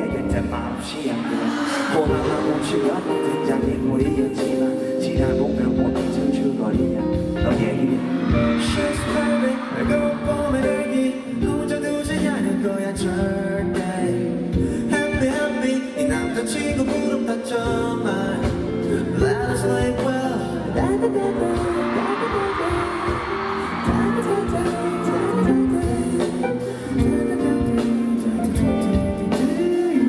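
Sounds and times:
instrumental pop backing: 0.0 - 30.0
man singing into microphone: 0.0 - 30.0.

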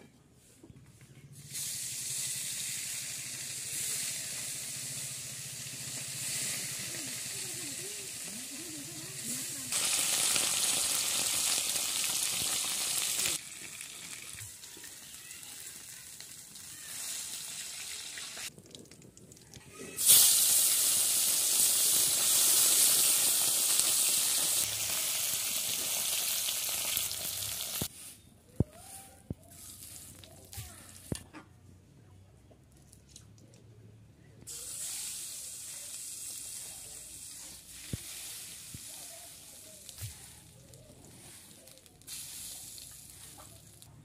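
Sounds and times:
fish frying in hot oil: 1.6 - 8.6, 9.2 - 19.2, 19.9 - 27.9, 34.5 - 37.3.

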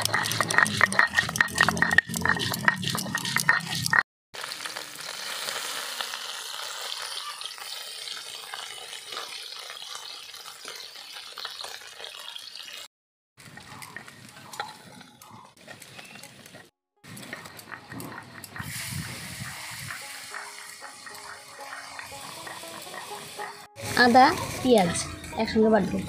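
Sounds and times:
metal spatula scraping: 0.0 - 4.0, 13.8 - 25.3
fish sizzling in hot oil: 0.0 - 13.6, 17.1 - 24.9.

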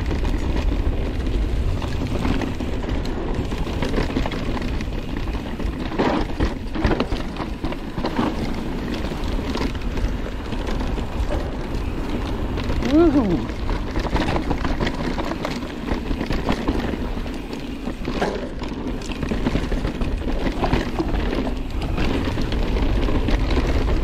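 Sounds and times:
bike knocks and rattles: 0.0 - 24.0
tyres crackling over dirt: 0.0 - 24.0
wind rumble on microphone: 0.0 - 24.0.

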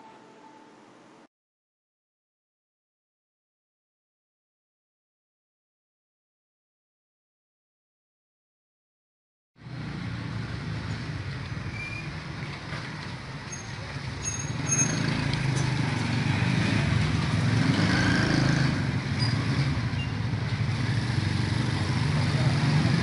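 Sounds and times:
small motorcycle engines passing: 9.6 - 23.0.

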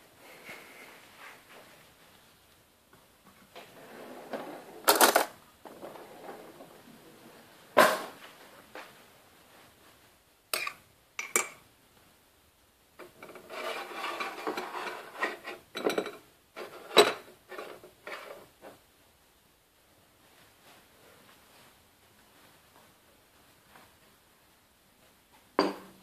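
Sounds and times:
spoon scraping cup: 13.3 - 15.5.

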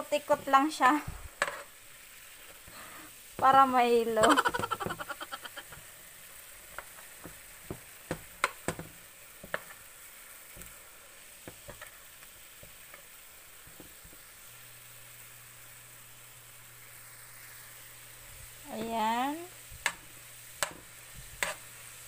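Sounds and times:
faint hiss of hot water: 0.0 - 22.0
metal spoon tapping a frying pan: 6.8 - 9.8, 19.8 - 20.0, 20.6 - 21.6.

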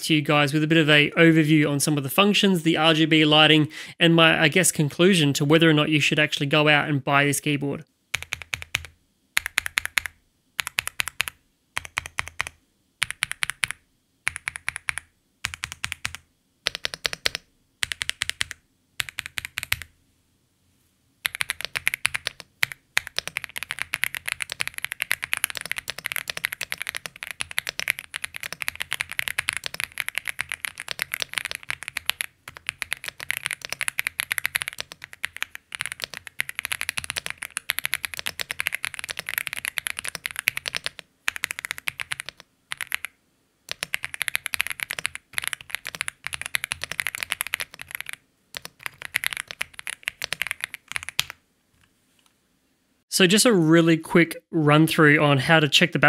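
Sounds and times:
mechanical keyboard typing: 8.1 - 19.9, 21.2 - 51.4.

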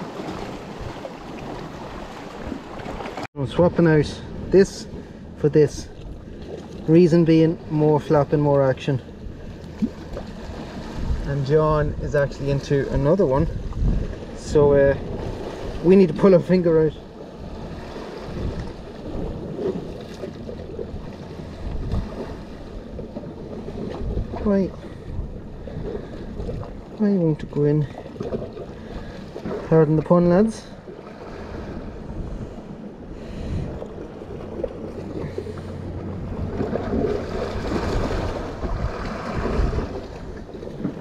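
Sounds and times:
sea washing on rocks: 0.0 - 9.0, 33.2 - 41.0
sea washing against rocks: 0.0 - 41.0
wind gusting on microphone: 9.1 - 26.9, 31.2 - 41.0.

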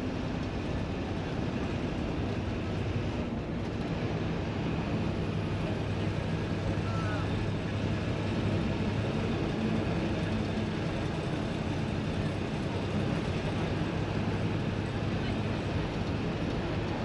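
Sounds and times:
bus engine running: 0.0 - 17.0
road noise rumble: 0.0 - 17.0.

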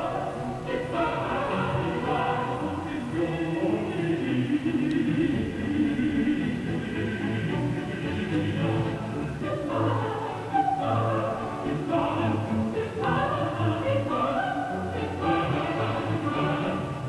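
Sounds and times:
music with singing voices: 0.0 - 17.0.

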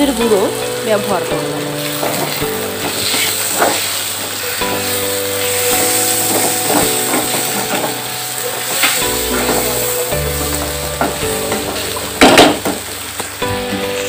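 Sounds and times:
onions sizzling in hot oil: 0.0 - 14.0
soft background music: 0.0 - 14.0
spatula scraping a pan: 1.8 - 4.0, 4.6 - 10.7.

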